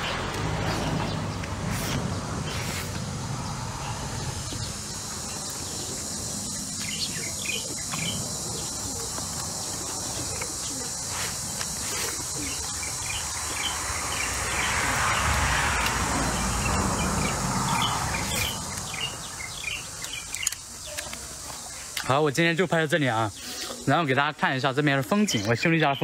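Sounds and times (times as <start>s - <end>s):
insect chirps: 0.0s - 26.0s
high-pitched insect drone: 2.2s - 25.5s
insect chewing clicks: 9.0s - 12.6s, 19.6s - 22.1s.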